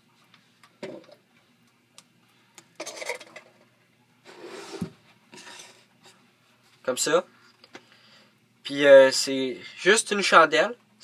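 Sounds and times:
objects rubbing and scraping on wood: 0:04.2 - 0:06.2.

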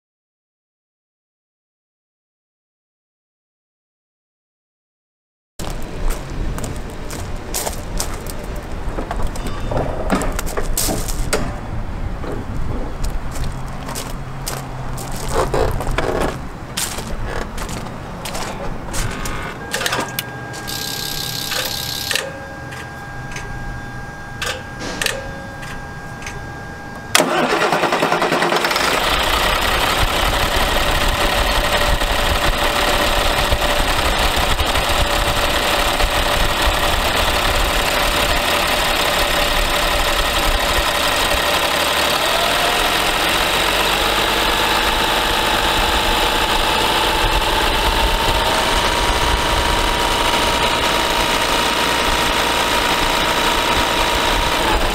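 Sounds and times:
diesel engine starting and idling: 0:13.9 - 0:54.9
steady electronic tone: 0:19.2 - 0:27.2
clicks: 0:24.4 - 0:27.2.

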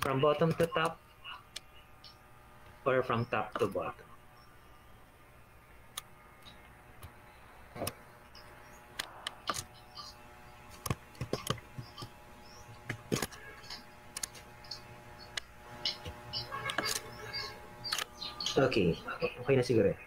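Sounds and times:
computer mouse clicking: 0:10.8 - 0:12.1.

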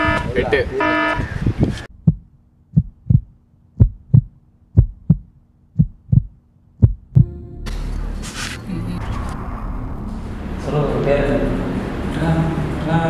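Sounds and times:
heartbeat thumps: 0:01.6 - 0:08.1.

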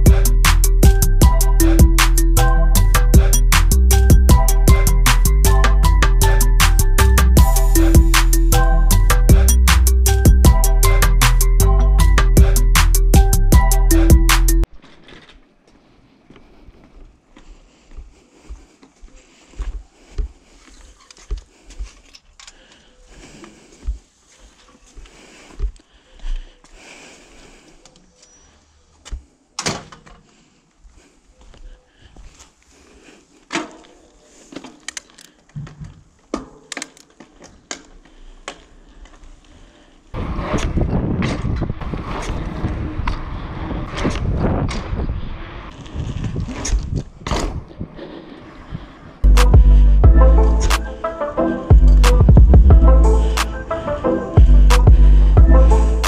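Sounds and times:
tyre noise on asphalt: 0:14.6 - 0:31.0, 0:31.6 - 0:49.8
bike clicks and knocks: 0:14.7 - 0:17.1, 0:20.2 - 0:25.9, 0:33.5 - 0:39.6, 0:45.7 - 0:47.8
bike knocking and rattling over paving: 0:34.5 - 0:39.4
wind rushing on microphone: 0:40.2 - 0:49.2.

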